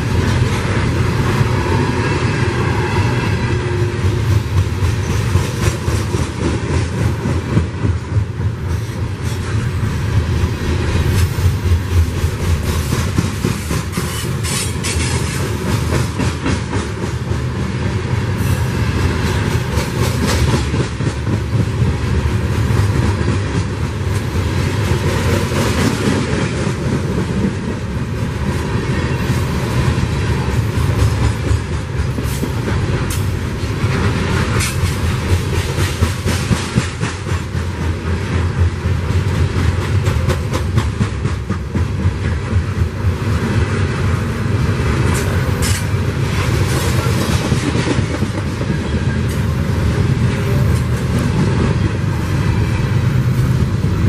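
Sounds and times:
train wheels rumbling on rail: 0.0 - 54.0
wheels clicking over rail joints: 30.6 - 43.2, 45.0 - 52.1.

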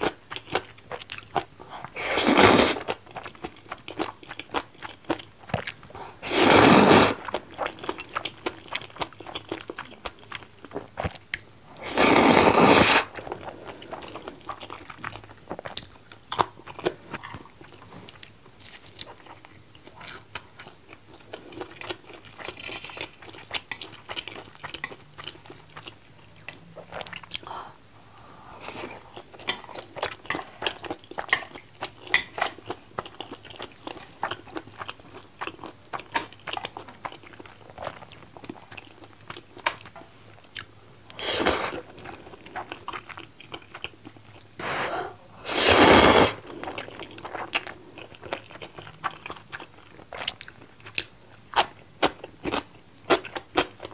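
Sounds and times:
chewing with wet mouth clicks: 0.0 - 2.0, 2.8 - 6.0, 7.3 - 11.5, 13.2 - 27.5, 29.2 - 40.8, 41.9 - 44.5, 46.5 - 53.9
noodle slurps: 2.0 - 2.9, 6.2 - 7.2, 11.8 - 13.2, 41.2 - 41.9, 44.6 - 46.4.

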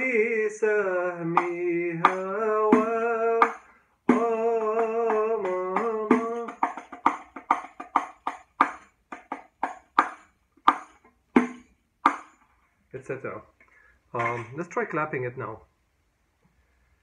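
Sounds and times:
man singing held notes: 0.0 - 6.7.

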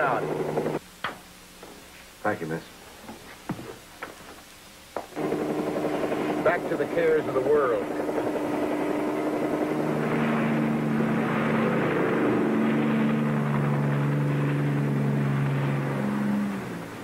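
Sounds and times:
helicopter engine and rotor: 5.2 - 15.7
low sustained tones: 5.3 - 17.0.

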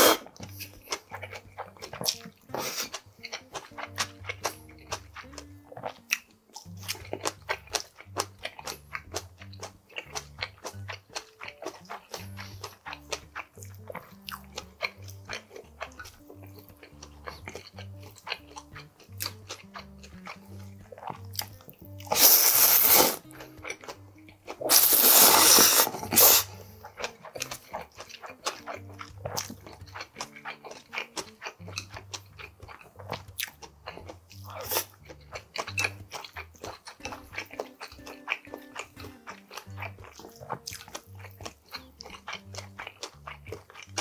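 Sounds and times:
noodles slurped: 0.0 - 3.0, 21.0 - 23.5, 24.5 - 29.6, 33.0 - 44.0
close-up chewing and crunching: 0.0 - 44.0
soft background music: 0.0 - 44.0.

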